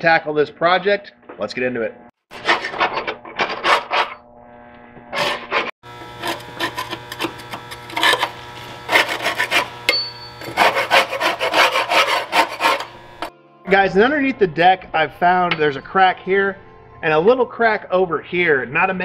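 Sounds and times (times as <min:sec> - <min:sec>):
hand tool scraping mower deck: 0:02.3 - 0:04.2, 0:05.1 - 0:09.8, 0:10.4 - 0:13.3.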